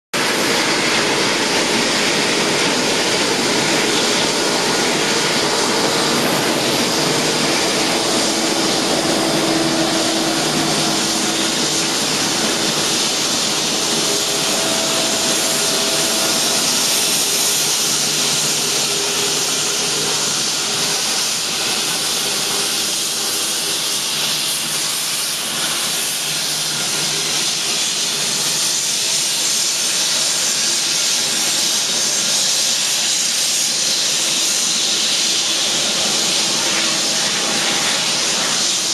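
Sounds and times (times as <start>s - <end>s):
jet engines at taxi power: 0.2s - 38.9s
faint wavering hum: 4.6s - 19.0s.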